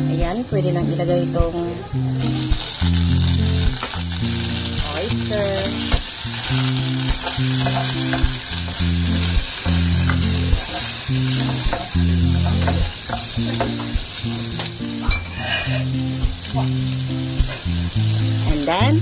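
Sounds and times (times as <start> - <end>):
oysters sizzling in oil: 0.0 - 19.0
spatula knocking against pan: 10.0 - 14.1.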